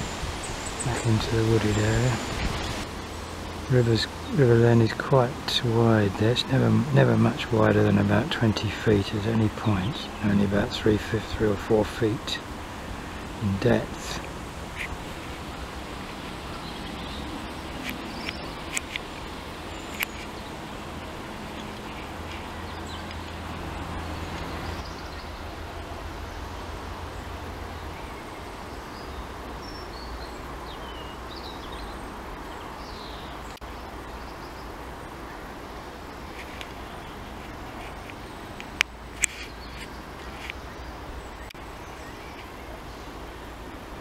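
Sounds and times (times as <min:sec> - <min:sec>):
wind on microphone: 0:00.0 - 0:04.3
bird chirps: 0:27.8 - 0:35.5.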